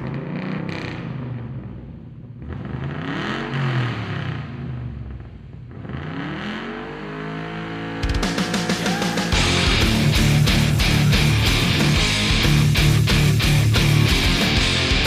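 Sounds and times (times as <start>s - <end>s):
engine revving: 0.0s - 15.0s
heavy rock music with guitar: 8.0s - 15.0s.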